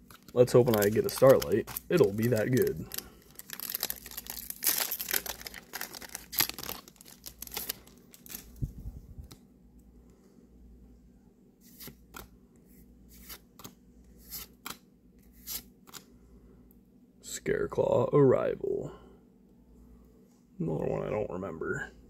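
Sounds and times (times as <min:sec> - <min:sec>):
foil pack tearing and crinkling: 0:00.1 - 0:08.5.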